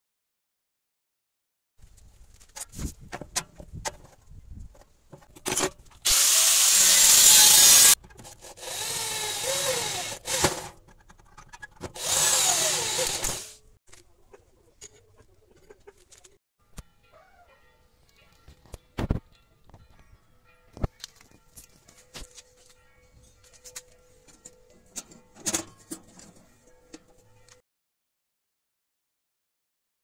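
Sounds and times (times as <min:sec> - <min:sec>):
power drill boring into steel: 0:06.0 - 0:10.8, 0:12.0 - 0:13.6
tools clicking and tapping: 0:09.5 - 0:14.1, 0:20.8 - 0:27.6.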